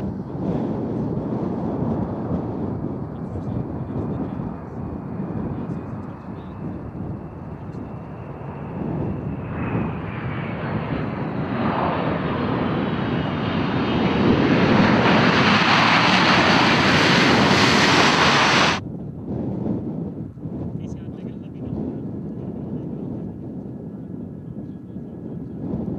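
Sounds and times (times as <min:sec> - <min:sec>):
jet engines running loud: 0:00.0 - 0:18.8.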